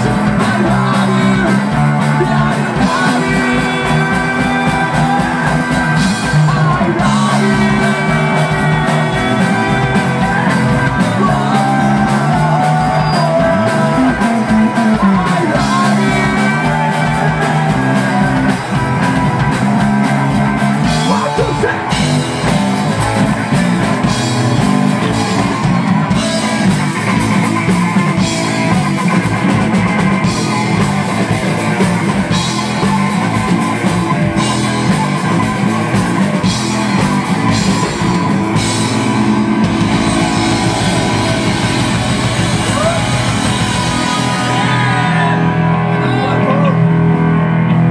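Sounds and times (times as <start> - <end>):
man singing: 0.0 - 19.2, 20.8 - 22.2
drum kit: 0.0 - 47.9
electric bass: 0.0 - 47.9
electric guitar: 0.0 - 47.9.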